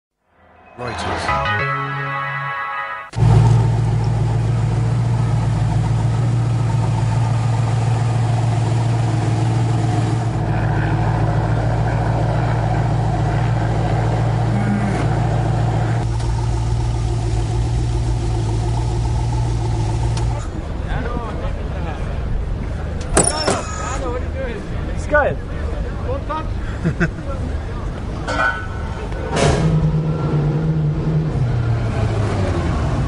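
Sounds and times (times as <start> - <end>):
car engine running: 3.1 - 23.1.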